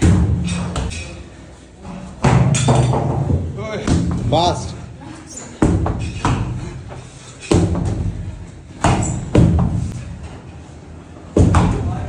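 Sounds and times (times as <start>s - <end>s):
heavy thuds on rubber floor: 8.8s - 9.9s.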